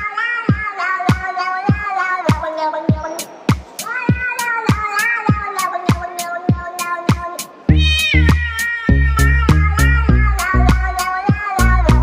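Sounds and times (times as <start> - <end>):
kick drum: 0.0 - 3.7, 9.4 - 12.0
cat meows: 3.8 - 11.9
heavy deep bass: 7.7 - 11.0, 11.6 - 12.0
upbeat electronic music: 7.7 - 12.0.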